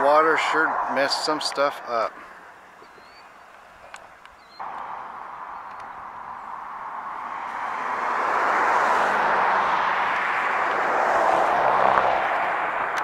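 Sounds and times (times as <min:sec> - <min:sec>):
passing vehicle rushing: 0:04.6 - 0:13.0.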